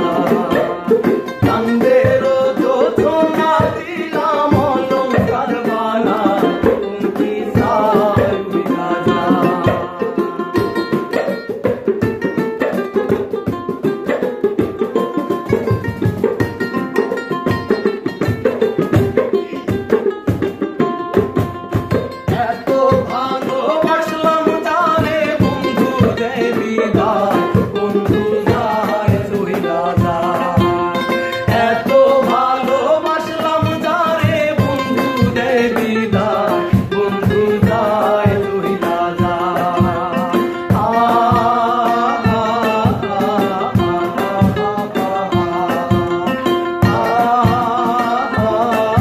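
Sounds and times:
men singing folk song: 0.0s - 11.5s, 22.0s - 49.0s
hand percussion beat: 0.0s - 49.0s
ukulele strumming: 0.0s - 49.0s.

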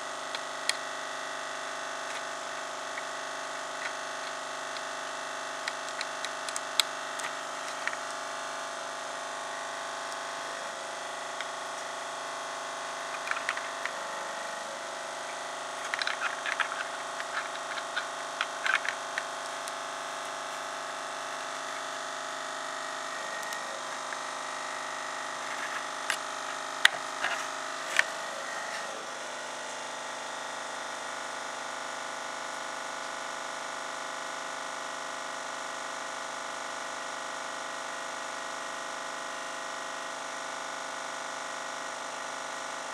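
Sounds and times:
steady electrical hum: 0.0s - 32.4s
hands clicking and tapping circuit board: 5.6s - 8.0s.

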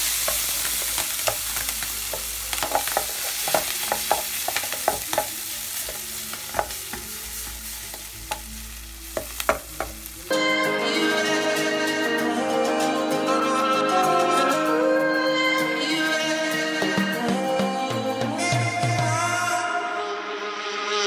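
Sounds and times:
clams sizzling in a frying pan: 0.0s - 10.3s
stirring clicks and knocks: 0.2s - 8.5s, 9.2s - 10.0s.

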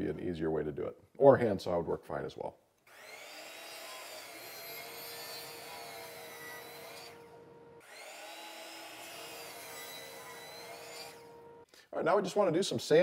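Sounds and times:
miter saw cutting wood: 2.9s - 11.7s.

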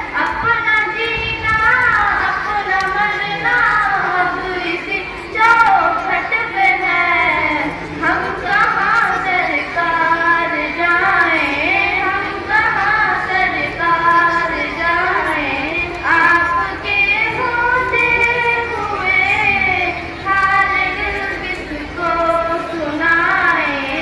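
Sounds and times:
girls singing devotional song: 0.0s - 24.0s.

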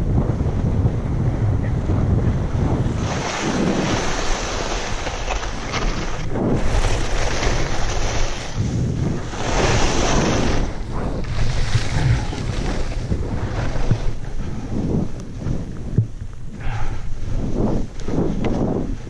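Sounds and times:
wind buffeting microphone: 0.0s - 19.0s
skis hissing on snow: 3.0s - 10.7s.

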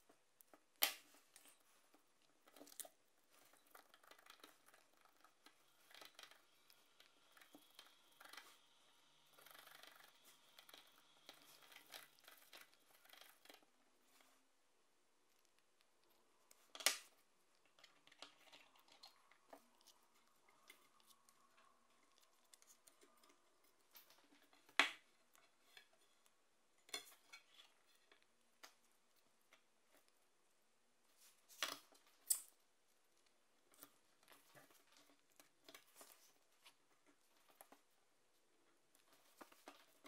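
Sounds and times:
faint handling noise: 15.2s - 40.0s.

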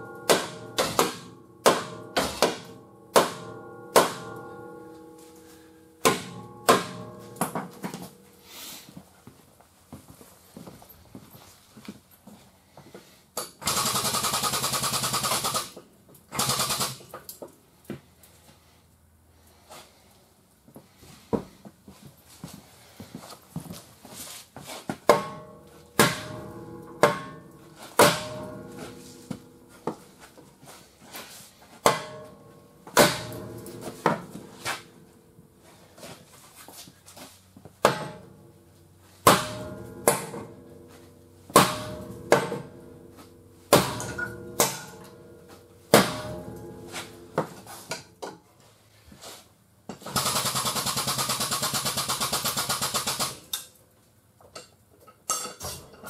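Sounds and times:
hammer blows ringing on steel: 0.0s - 8.2s, 25.1s - 30.1s, 31.8s - 35.1s, 37.8s - 38.6s, 39.2s - 47.7s.

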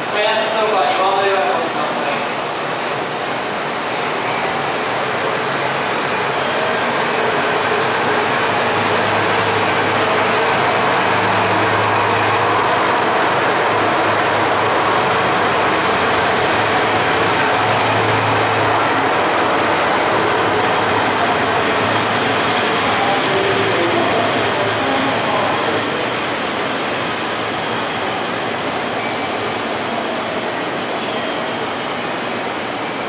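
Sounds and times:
train diesel engine running: 0.0s - 33.0s.

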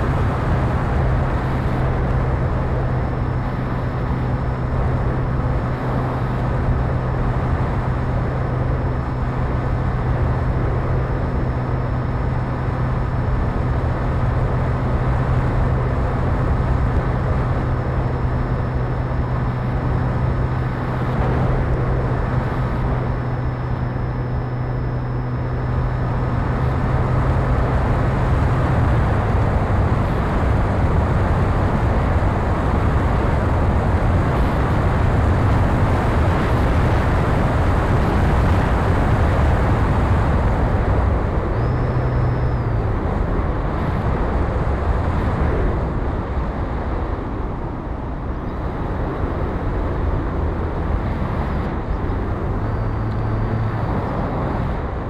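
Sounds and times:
electric motor and propeller hum: 0.0s - 55.0s
wind rushing over camera: 0.0s - 55.0s.

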